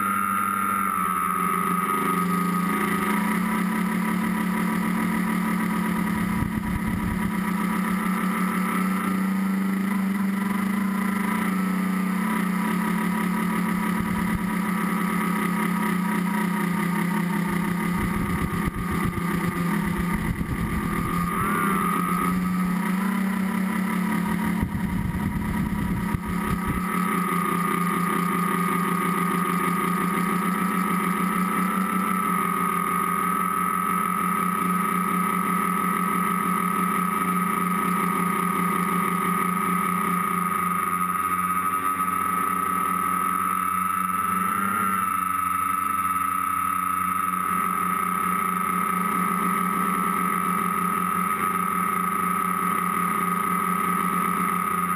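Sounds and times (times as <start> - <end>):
drone propellers whining: 0.0 - 54.9
wind rumble on microphone: 6.3 - 7.2, 24.6 - 26.8.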